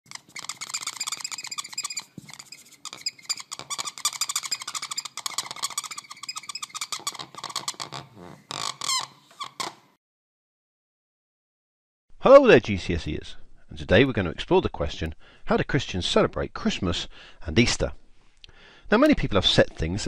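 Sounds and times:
marker squeaking on whiteboard: 0:00.0 - 0:09.9.

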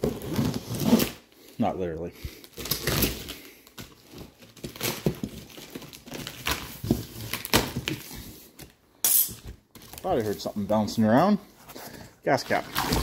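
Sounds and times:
cardboard scraping and crinkling: 0:00.0 - 0:01.2
cardboard tearing: 0:00.0 - 0:01.3, 0:02.4 - 0:08.4.

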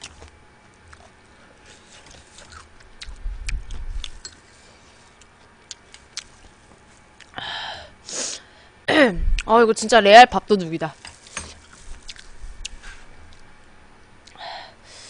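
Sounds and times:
low rumble: 0:09.2 - 0:09.5.

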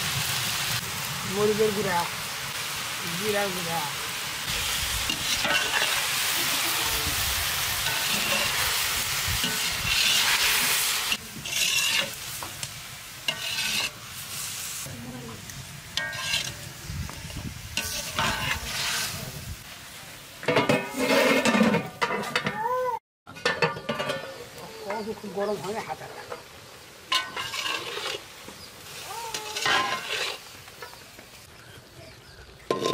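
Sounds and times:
food sizzling in a pan: 0:00.0 - 0:22.1, 0:23.4 - 0:32.9
spatula scraping pan: 0:05.0 - 0:06.6, 0:07.8 - 0:12.6, 0:13.2 - 0:14.0, 0:16.0 - 0:19.2, 0:20.4 - 0:22.5, 0:27.1 - 0:28.4, 0:29.3 - 0:31.0, 0:32.7 - 0:32.9.

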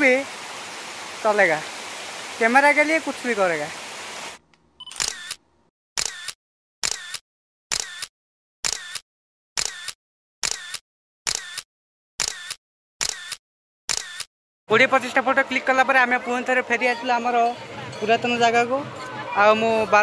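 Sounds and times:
camera shutter click: 0:04.9 - 0:05.4, 0:06.0 - 0:09.0, 0:09.6 - 0:14.3.

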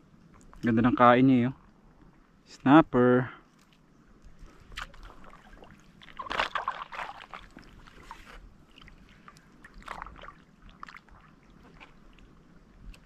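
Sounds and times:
water splashing and sloshing: 0:03.5 - 0:13.0.

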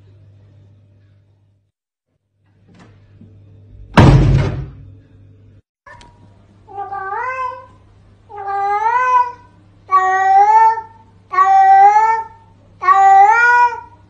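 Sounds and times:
loud thump: 0:03.9 - 0:04.9
cat meowing: 0:06.7 - 0:14.0.

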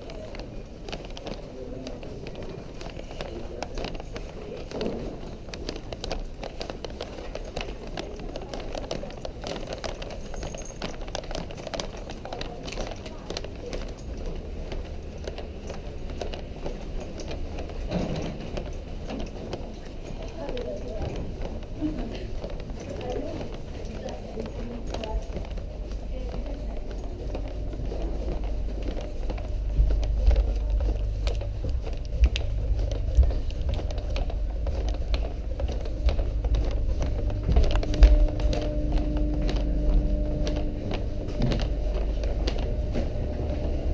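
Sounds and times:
footsteps walking: 0:00.0 - 0:43.9
low steady rumble: 0:24.4 - 0:43.9.

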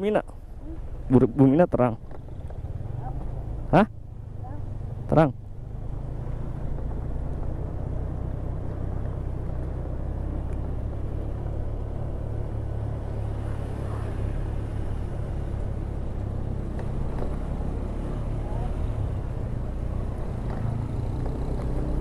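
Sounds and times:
wind and road noise: 0:00.0 - 0:22.0.

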